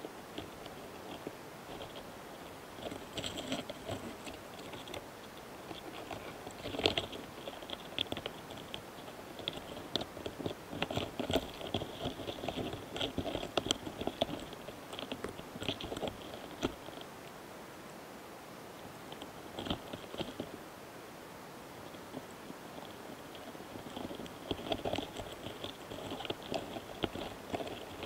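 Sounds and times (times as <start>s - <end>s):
beetles clicking and scraping: 0.0s - 17.4s, 18.7s - 20.7s, 21.6s - 28.0s.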